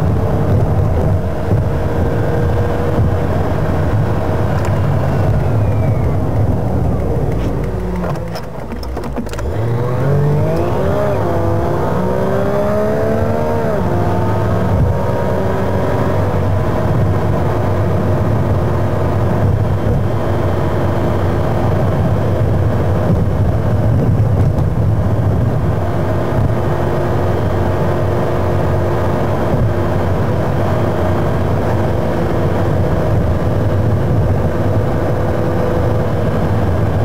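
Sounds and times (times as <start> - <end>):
car engine drone: 0.0 - 37.0
tyre noise: 0.4 - 12.0.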